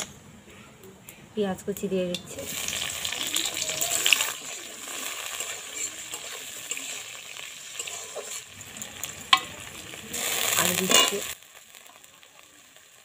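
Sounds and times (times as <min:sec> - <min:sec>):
onions sizzling in hot oil: 0:01.8 - 0:13.0
metal spatula stirring: 0:02.2 - 0:11.4.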